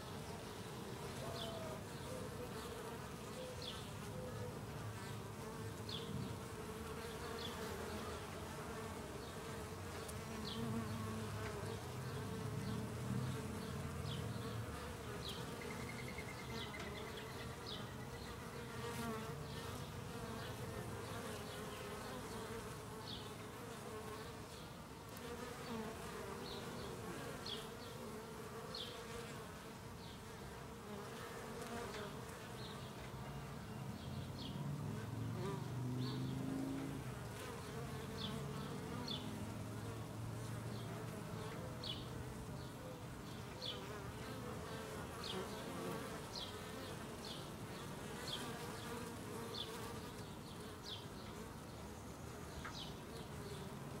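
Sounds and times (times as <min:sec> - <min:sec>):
bees buzzing: 0:43.3 - 0:51.7.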